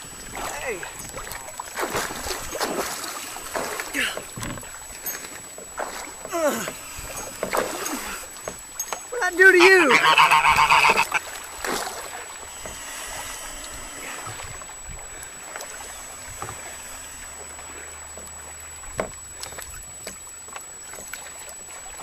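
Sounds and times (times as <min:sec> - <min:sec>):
water and wind around kayak: 0:00.0 - 0:22.0
goose honking: 0:09.5 - 0:11.3.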